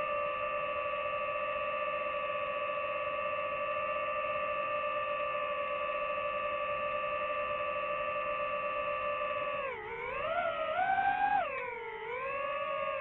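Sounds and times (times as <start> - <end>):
drone propellers whining: 7.5 - 13.0.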